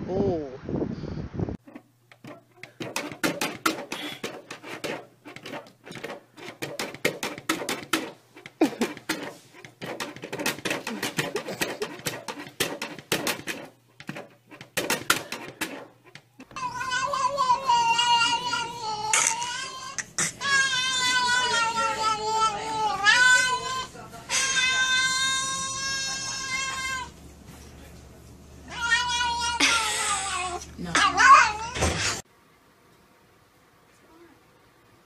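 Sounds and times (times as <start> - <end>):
small dogs yapping: 28.7 - 32.2.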